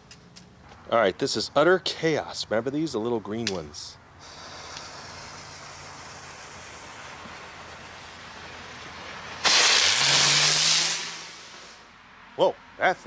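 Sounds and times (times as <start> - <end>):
firework hissing: 4.2 - 11.9.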